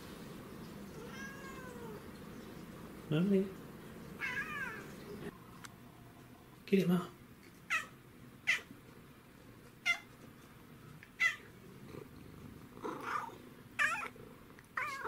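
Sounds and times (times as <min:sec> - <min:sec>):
cat chirping: 0:07.7 - 0:08.7, 0:09.8 - 0:10.1, 0:11.1 - 0:12.0, 0:12.8 - 0:14.1, 0:14.8 - 0:15.0.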